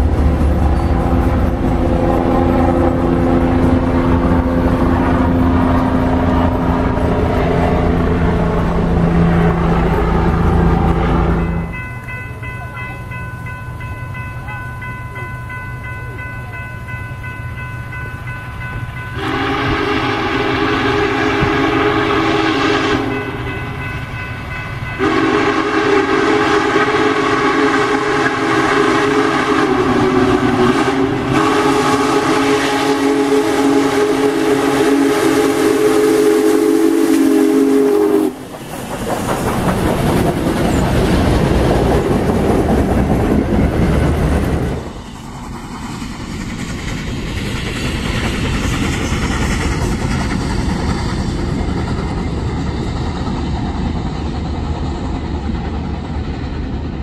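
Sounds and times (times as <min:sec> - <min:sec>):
locomotive exhaust and wheels rumbling: 0:00.0 - 0:57.0
steam locomotive whistle: 0:00.7 - 0:11.8, 0:19.1 - 0:23.8, 0:24.8 - 0:38.5.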